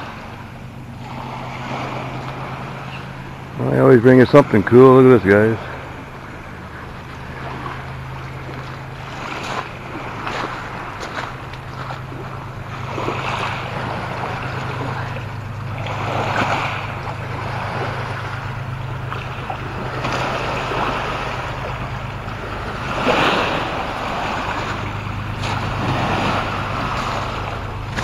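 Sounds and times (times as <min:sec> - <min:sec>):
water washing against pebble shore: 0:00.0 - 0:28.0
wind rumbling on microphone: 0:00.0 - 0:28.0.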